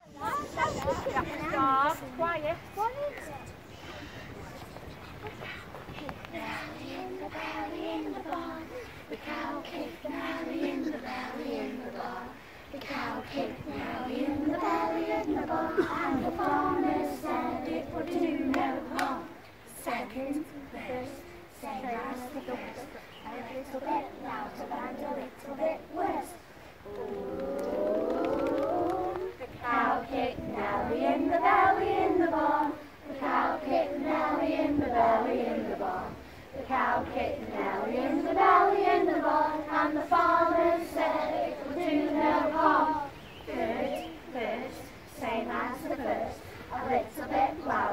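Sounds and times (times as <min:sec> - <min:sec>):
children and adults singing: 0:05.9 - 0:47.9.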